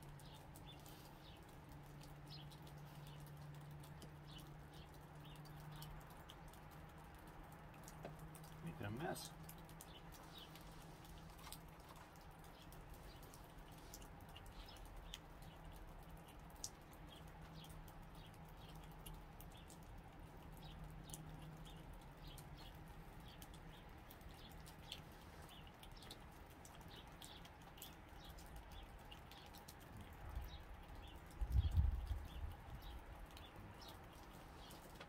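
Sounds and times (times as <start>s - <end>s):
faint outdoor ambience: 0.0s - 35.0s
small birds chirping: 0.0s - 35.0s
squirrel chewing nut: 0.0s - 35.0s.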